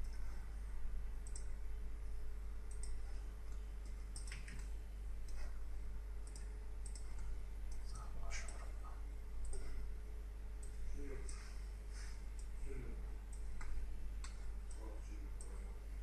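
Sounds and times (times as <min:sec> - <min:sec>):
steady low hum: 0:00.0 - 0:16.0
computer mouse buttons clicking: 0:01.2 - 0:01.6, 0:02.7 - 0:05.5, 0:06.2 - 0:08.7.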